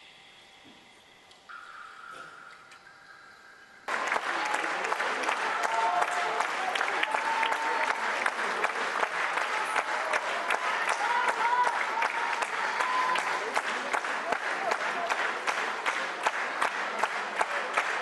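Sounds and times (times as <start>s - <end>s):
audience applauding: 3.9s - 18.0s.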